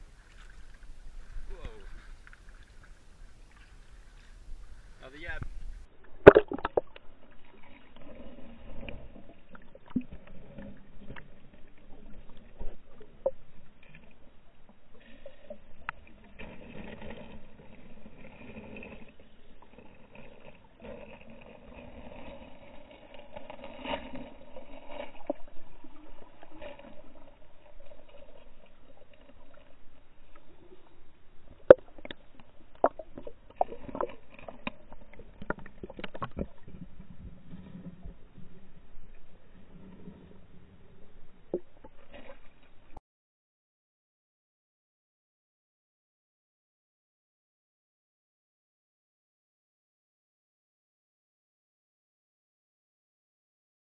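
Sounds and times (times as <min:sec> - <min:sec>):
muffled water lapping and gurgling: 0:00.0 - 0:43.0.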